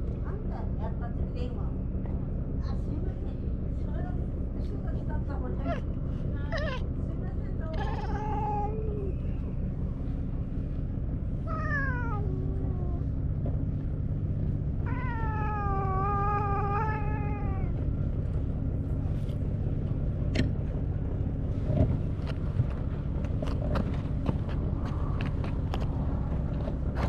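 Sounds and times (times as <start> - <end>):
steady low hum: 0.0 - 27.0
cat meowing: 6.5 - 6.9, 7.7 - 9.3, 11.5 - 13.1, 14.8 - 17.8.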